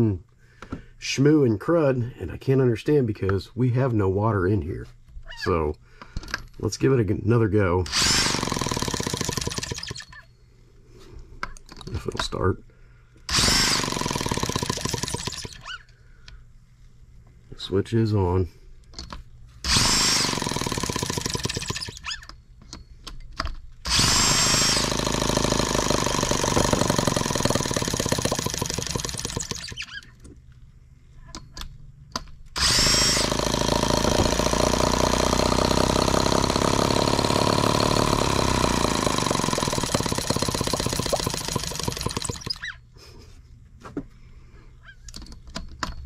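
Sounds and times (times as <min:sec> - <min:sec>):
electric drill cranking engine: 0:07.9 - 0:10.2, 0:13.3 - 0:15.8, 0:19.6 - 0:22.4, 0:23.8 - 0:30.0, 0:32.6 - 0:42.8
rising drill whine: 0:23.9 - 0:29.9, 0:32.6 - 0:42.6.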